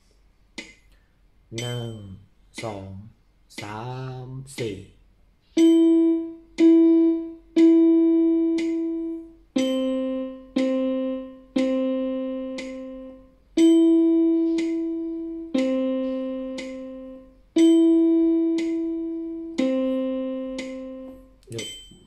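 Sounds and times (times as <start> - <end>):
metronome ticking: 0.5 - 5.0, 5.6 - 22.0
electronic keyboard notes: 5.6 - 22.0.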